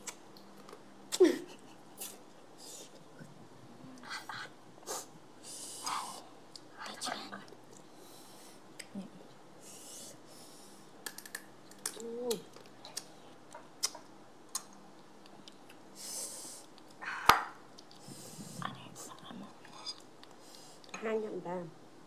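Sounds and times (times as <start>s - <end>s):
breathy hisses: 4.8s - 6.3s, 9.6s - 10.9s, 16.0s - 17.3s, 18.0s - 18.6s.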